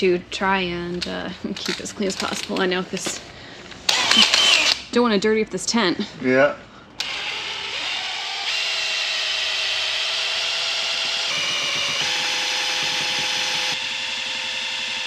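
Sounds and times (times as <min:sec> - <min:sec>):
cordless drill motor whining: 0:03.9 - 0:04.8, 0:07.0 - 0:15.0.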